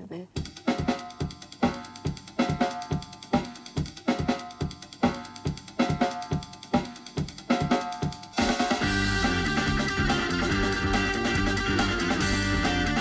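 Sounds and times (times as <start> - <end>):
drum kit beat: 0.0 - 13.0
pitched chords: 8.8 - 13.0.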